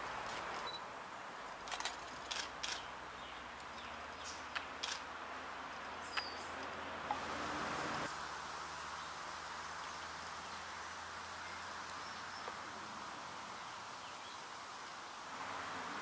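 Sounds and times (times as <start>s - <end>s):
background hiss: 0.0s - 16.0s.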